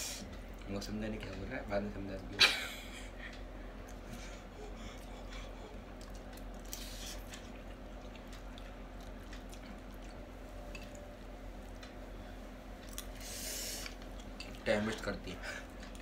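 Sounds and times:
steady low hum: 0.0s - 16.0s
slurping and chewing noodles: 5.0s - 10.2s.

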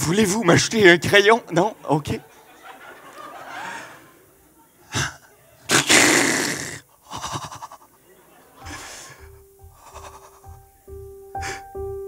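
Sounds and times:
choppy mouth sounds: 4.9s - 8.0s, 8.7s - 10.7s
man's breathy vocal noises: 8.7s - 10.5s.

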